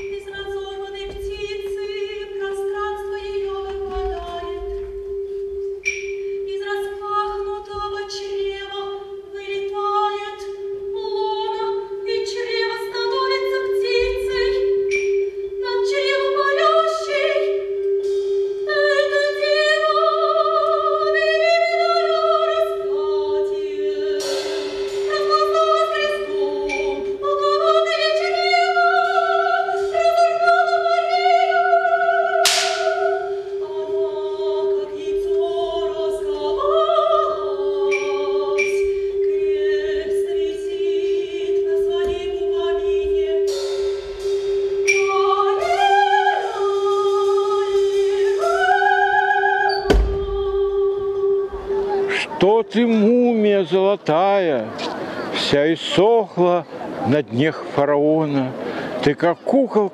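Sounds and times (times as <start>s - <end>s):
woman singing with vibrato: 0.0s - 53.8s
marimbas playing: 0.0s - 54.5s.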